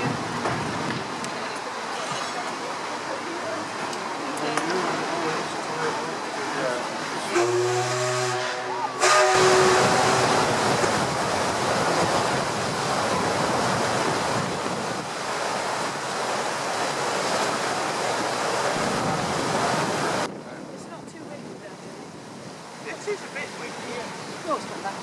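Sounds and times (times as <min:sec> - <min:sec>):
paddle wheels churning water: 0:00.0 - 0:25.0
wind on microphone: 0:09.0 - 0:25.0.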